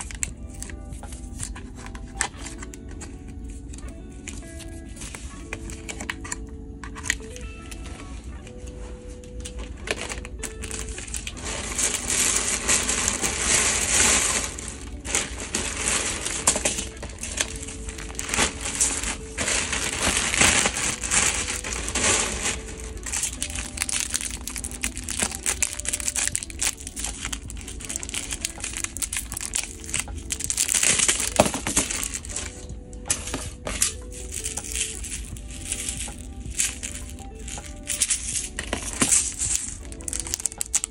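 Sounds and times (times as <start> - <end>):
plastic bags crinkling: 0.0 - 40.9
quiet background music: 0.0 - 40.9
plastic cases clicking: 9.4 - 40.9.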